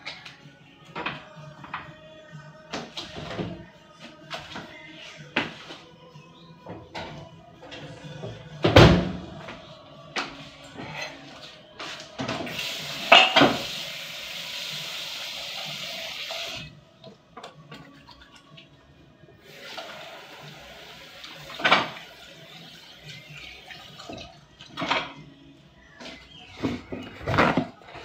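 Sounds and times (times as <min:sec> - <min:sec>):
dishes clattering: 0:12.2 - 0:13.7, 0:21.5 - 0:22.0, 0:23.7 - 0:25.2, 0:26.1 - 0:28.0
tap running into sink: 0:12.3 - 0:13.9, 0:21.2 - 0:22.2.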